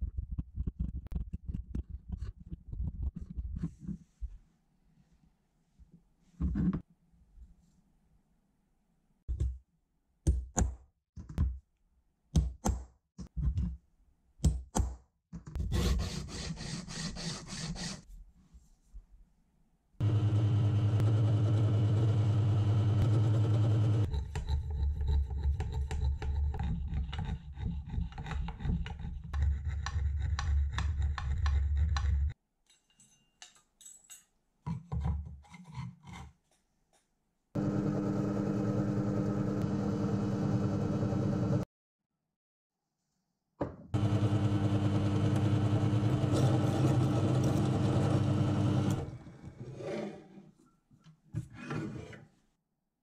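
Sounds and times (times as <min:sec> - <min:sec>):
drill press motor hum: 0:20.0 - 0:24.1, 0:37.6 - 0:41.6, 0:44.0 - 0:49.3.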